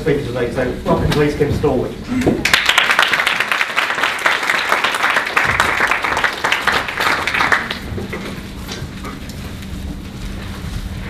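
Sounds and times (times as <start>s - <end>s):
audience applauding: 2.4s - 8.2s.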